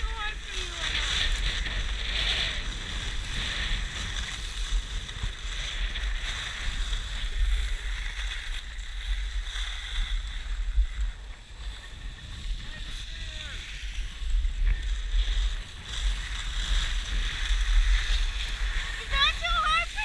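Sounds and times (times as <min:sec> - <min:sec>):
skis scraping over snow: 0:00.0 - 0:20.0
wind buffeting microphone: 0:00.0 - 0:20.0.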